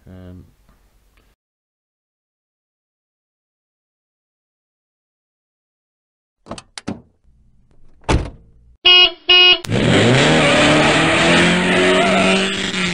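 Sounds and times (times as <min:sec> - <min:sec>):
car door thunk: 0:07.8 - 0:08.5
car horn beeps: 0:08.8 - 0:09.7
car engine starting and revving: 0:09.6 - 0:12.9.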